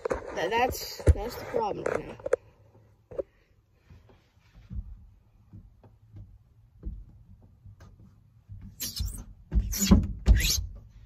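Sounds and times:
hand rubbing window glass: 8.7s - 10.8s.

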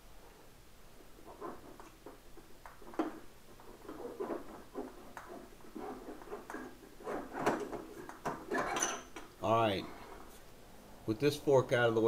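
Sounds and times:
metal scraping and rubbing: 1.2s - 10.4s.

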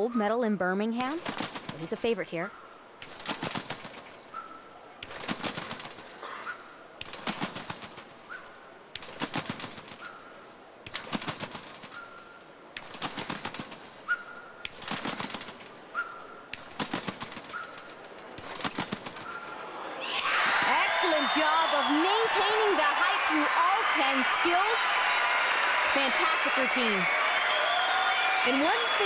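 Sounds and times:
trampoline bed and springs rattling: 0.8s - 19.8s.

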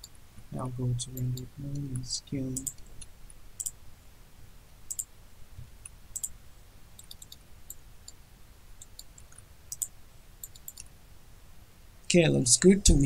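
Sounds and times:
low room hum: 0.0s - 13.0s
computer mouse clicking: 1.1s - 3.8s, 4.9s - 6.4s, 7.0s - 8.2s, 8.8s - 10.9s.

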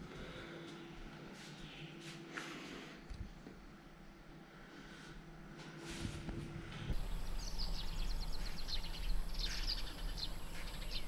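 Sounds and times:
faint hum: 0.0s - 11.0s
low steady rumble: 3.2s - 11.0s
birds chirping: 7.0s - 11.0s.

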